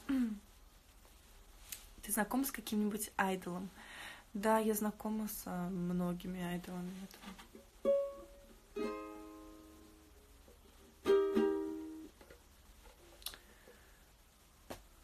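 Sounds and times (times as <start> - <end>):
ukulele chords strummed: 7.6 - 10.2, 10.8 - 12.4.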